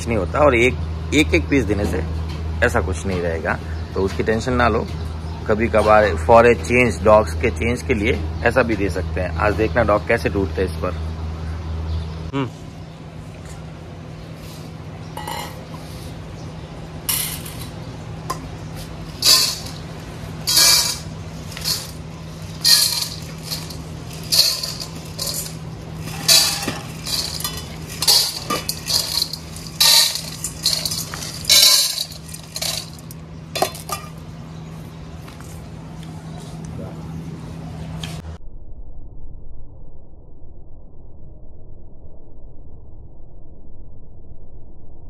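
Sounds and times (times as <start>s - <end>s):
metal bowls clinking: 15.2s - 15.8s, 17.1s - 34.2s
kibble rattling into metal bowls: 17.1s - 34.2s.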